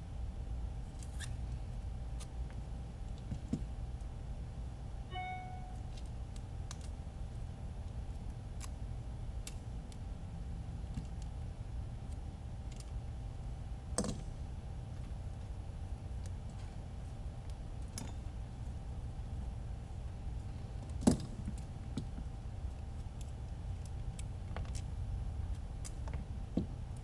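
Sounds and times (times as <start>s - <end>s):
steady low hum: 0.0s - 27.0s
short beep: 5.1s - 5.8s.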